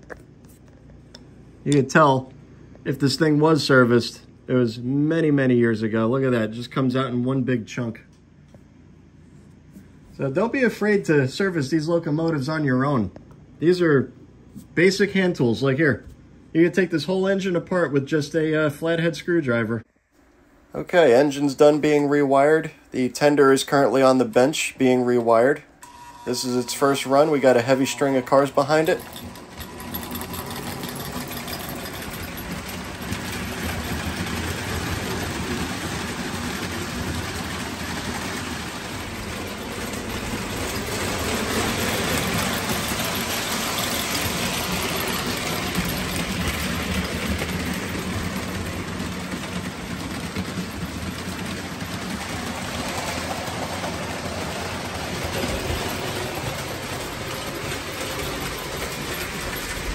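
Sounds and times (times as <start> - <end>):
model train wheels rumbling: 20.8 - 25.7, 26.3 - 59.9.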